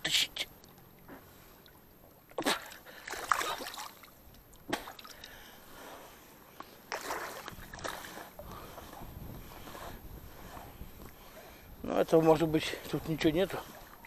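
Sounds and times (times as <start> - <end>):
water splashing and sloshing: 0.5 - 14.0.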